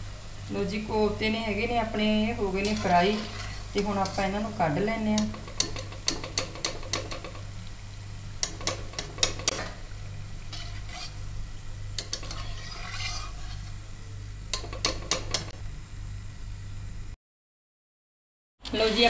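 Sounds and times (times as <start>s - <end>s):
oil sizzling: 0.0s - 15.6s
metal skimmer scraping a pan: 2.4s - 6.5s, 10.5s - 11.3s, 12.0s - 13.8s.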